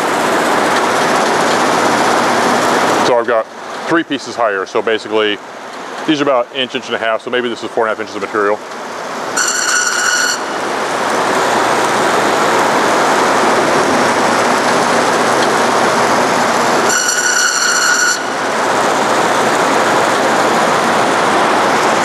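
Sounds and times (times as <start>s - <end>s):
high squeal: 9.4s - 10.6s, 16.8s - 18.4s
bandsaw running: 9.4s - 22.0s.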